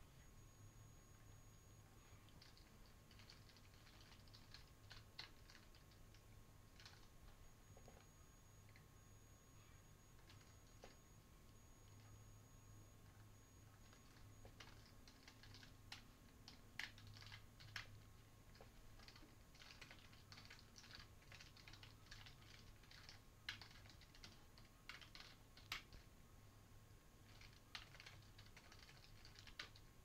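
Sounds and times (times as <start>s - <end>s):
typing on computer keyboard: 2.3s - 8.1s, 10.1s - 11.0s, 13.5s - 26.1s, 27.2s - 29.9s.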